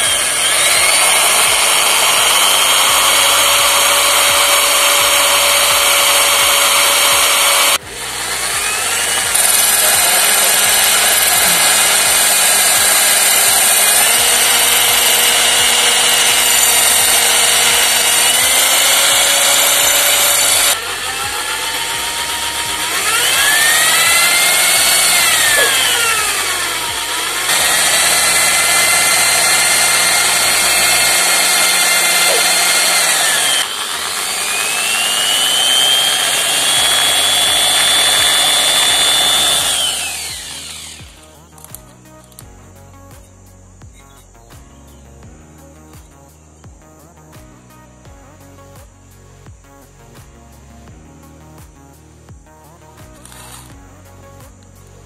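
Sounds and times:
electric drill grinding into metal: 0.0s - 42.4s, 53.2s - 53.7s.

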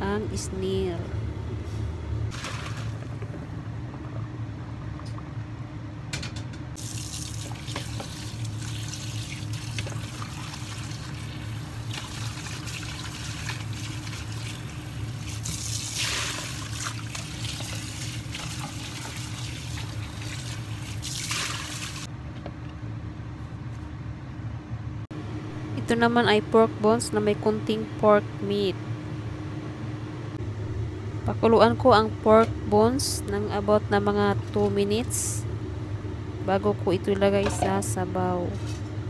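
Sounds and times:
steady low hum: 0.0s - 39.0s
tap water running into sink: 6.8s - 22.1s.

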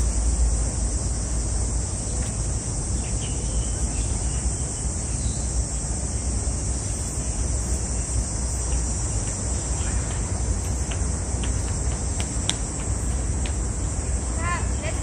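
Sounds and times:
high-pitched insect drone: 0.0s - 12.2s
faint high ticks: 8.6s - 13.6s.

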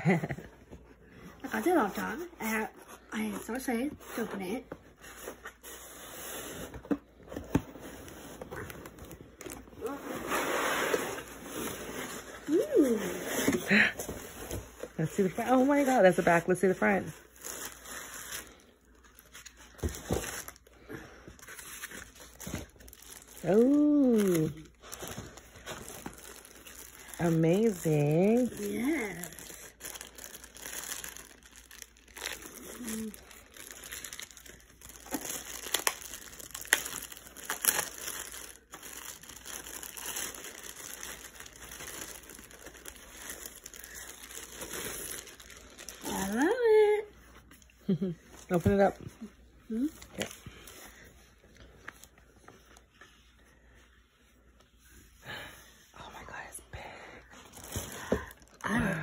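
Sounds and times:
foam and plastic rustling: 1.4s - 49.1s
plastic bag crinkling: 21.4s - 46.9s.

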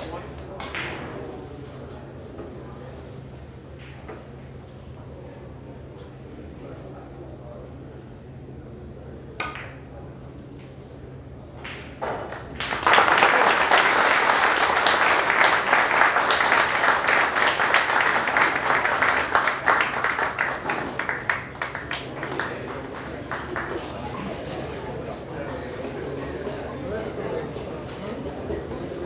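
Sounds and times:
audience applause: 12.6s - 24.0s.

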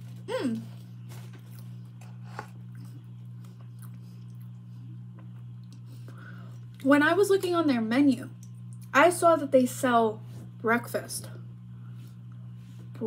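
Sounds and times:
low electrical hum: 0.0s - 13.0s
chewing and mouth clicks: 0.7s - 6.9s.

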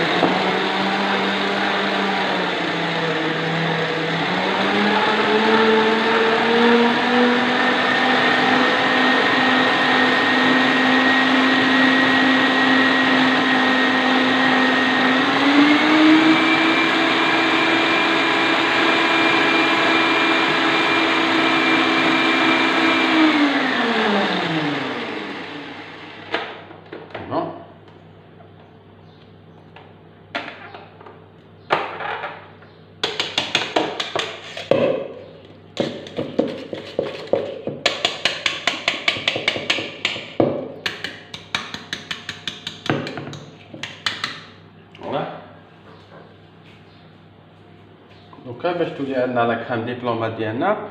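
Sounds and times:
electric stand mixer whine: 0.0s - 26.7s.

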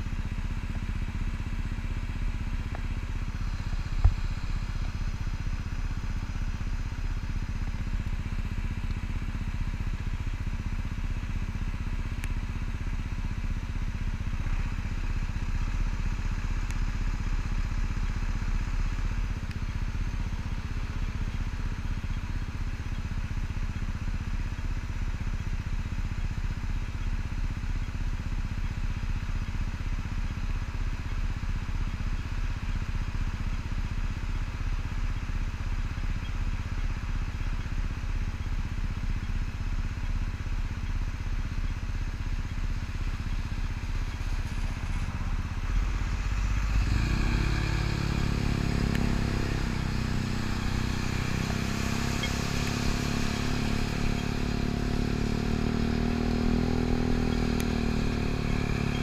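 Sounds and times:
scooter idling: 0.0s - 59.0s
bus engine idling: 39.6s - 58.2s.

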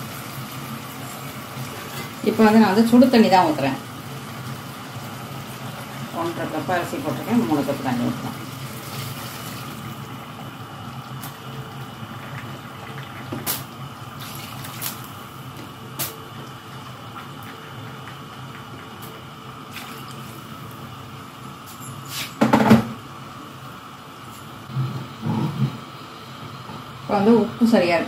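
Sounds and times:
hot water pouring into pot: 8.4s - 10.0s.

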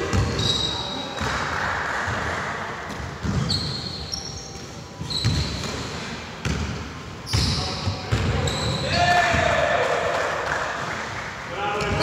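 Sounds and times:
sneaker squeaks: 0.0s - 1.4s, 2.9s - 6.6s, 7.2s - 9.4s.

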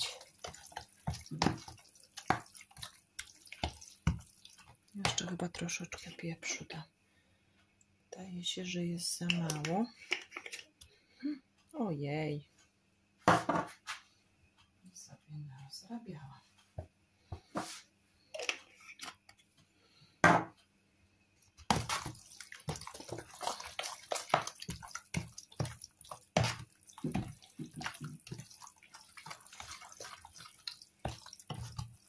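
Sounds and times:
wet slapping and squishing of potato: 0.0s - 5.9s, 21.6s - 32.0s.

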